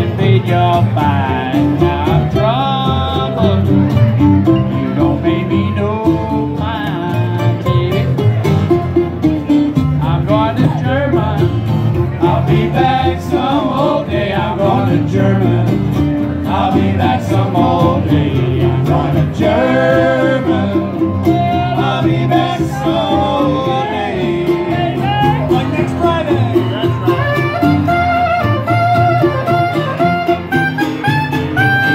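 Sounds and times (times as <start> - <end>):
man singing: 0.0 - 8.4, 10.0 - 27.4
strummed acoustic guitar: 0.0 - 31.9
upright bass: 0.0 - 31.9
soprano saxophone: 27.2 - 31.9.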